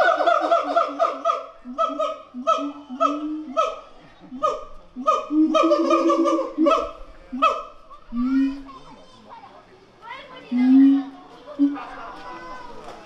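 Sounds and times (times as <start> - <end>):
siamangs honking bark calls: 0.0 - 7.8.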